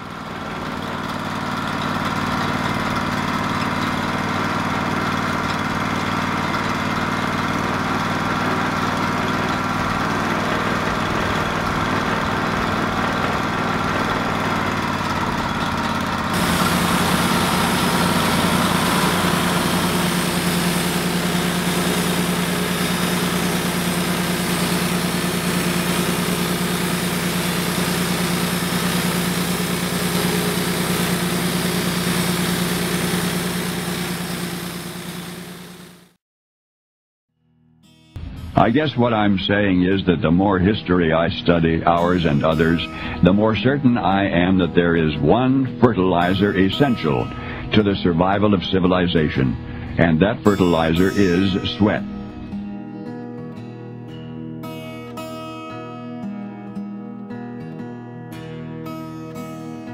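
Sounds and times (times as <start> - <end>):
deeper engine note: 0.0 - 36.1, 38.2 - 45.4, 46.1 - 52.9
engine idling: 0.0 - 36.1.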